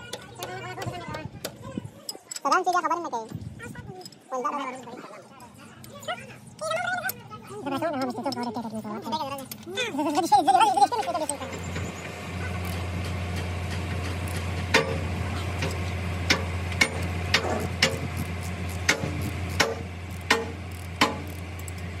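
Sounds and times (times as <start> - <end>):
ratchet wrench clicking: 0.0 - 3.0, 4.0 - 4.2, 15.6 - 21.9.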